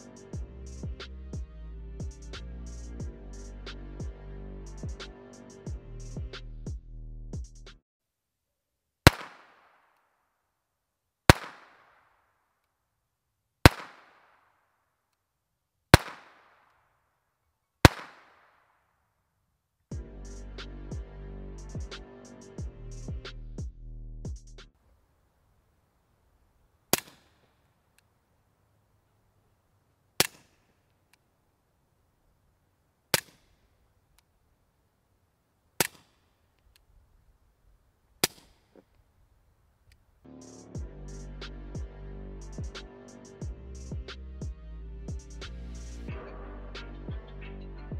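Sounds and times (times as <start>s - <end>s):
pistol shots with echo: 9.1s - 9.8s, 11.3s - 12.0s, 13.7s - 14.4s, 16.0s - 16.6s, 17.8s - 18.6s, 27.0s - 27.4s.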